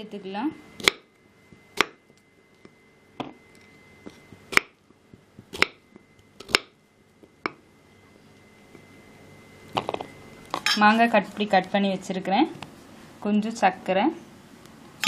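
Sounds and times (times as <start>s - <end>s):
knife chopping on wooden board: 5.5s - 5.8s, 6.4s - 6.7s.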